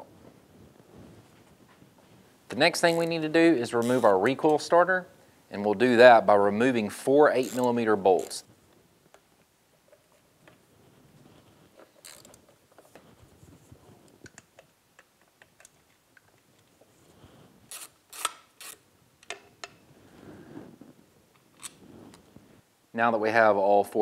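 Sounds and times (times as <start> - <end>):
ratchet turning bolts: 7.4 - 8.4, 12.0 - 12.4.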